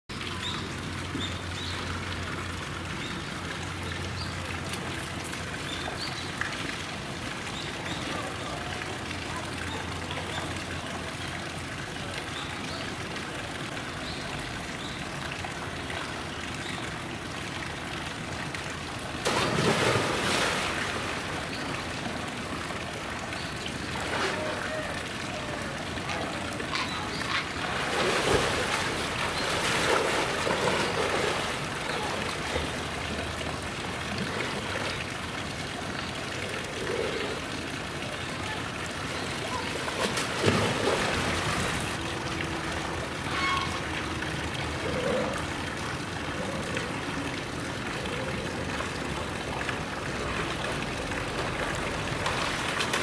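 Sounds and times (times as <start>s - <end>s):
running water: 0.1s - 53.0s
loud splash into pool: 19.2s - 21.3s
water sloshing: 19.2s - 22.4s, 26.6s - 33.1s.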